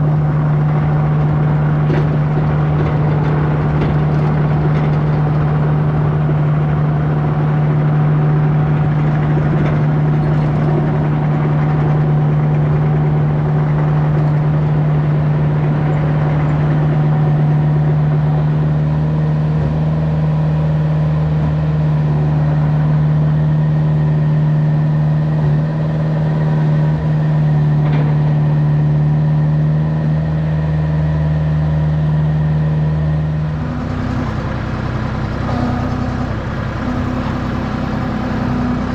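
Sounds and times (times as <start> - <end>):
excavator diesel engine humming: 0.0 - 38.9
hydraulics working: 0.0 - 38.9.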